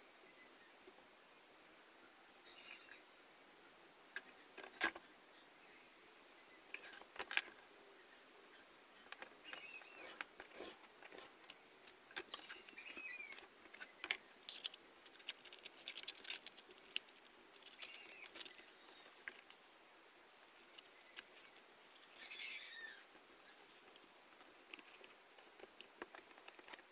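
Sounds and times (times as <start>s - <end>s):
paper and card being handled: 12.1s - 19.6s.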